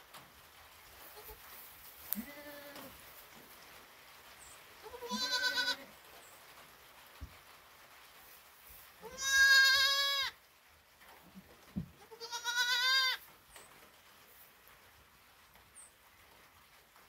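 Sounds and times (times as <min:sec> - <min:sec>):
goat bleating: 0:02.1 - 0:02.9, 0:04.8 - 0:05.9, 0:09.0 - 0:10.4, 0:12.0 - 0:13.2.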